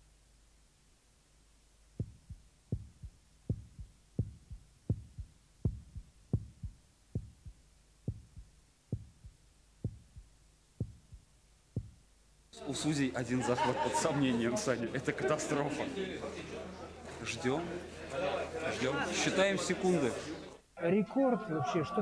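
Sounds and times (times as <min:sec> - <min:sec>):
heartbeat thumps: 0:02.0 - 0:12.1.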